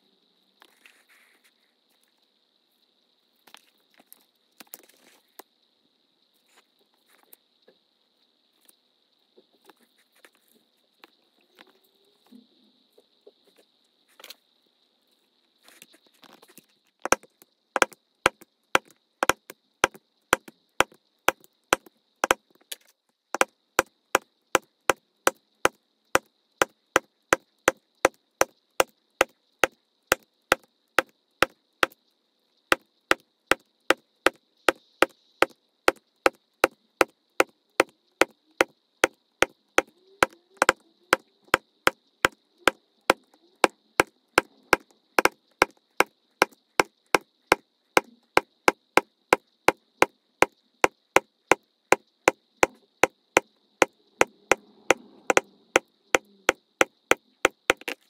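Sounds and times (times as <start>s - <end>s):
mallet striking leather tool: 17.8s - 22.4s, 44.7s - 45.8s, 56.2s - 58.0s.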